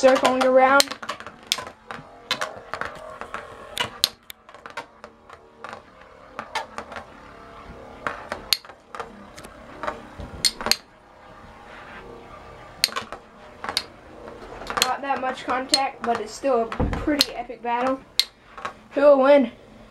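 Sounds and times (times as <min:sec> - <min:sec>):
tops clacking together: 0:00.0 - 0:05.8, 0:08.1 - 0:10.9
spinning tops whirring: 0:00.0 - 0:18.9.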